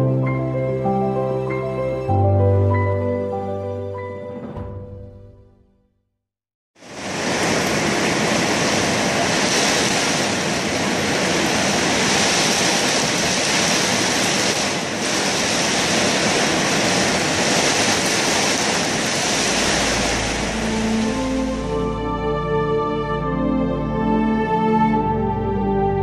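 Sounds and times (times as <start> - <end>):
strong wind: 6.8 - 22.5
heavy rain pouring: 6.8 - 22.6.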